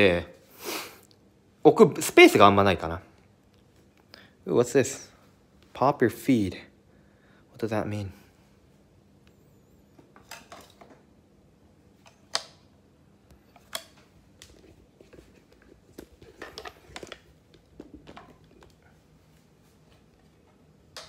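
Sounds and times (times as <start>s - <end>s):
plastic props clicking and clattering: 13.5s - 18.8s.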